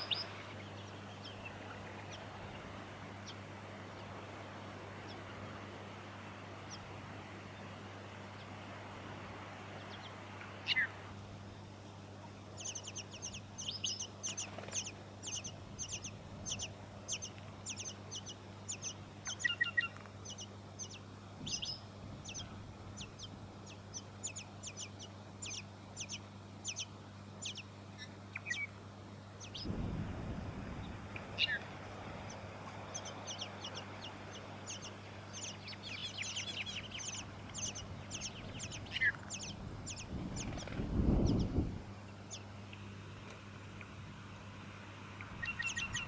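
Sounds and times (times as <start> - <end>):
nestlings begging calls: 0.0 - 4.1, 9.8 - 11.0, 12.6 - 28.7, 29.4 - 42.5, 45.2 - 46.0
faint low hum: 0.0 - 46.0.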